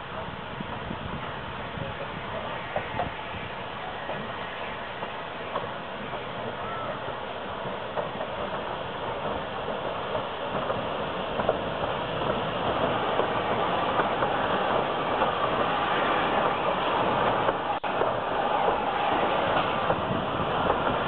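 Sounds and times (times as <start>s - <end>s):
steam hiss: 0.0s - 21.0s
steam locomotive wheels clanking: 0.1s - 21.0s.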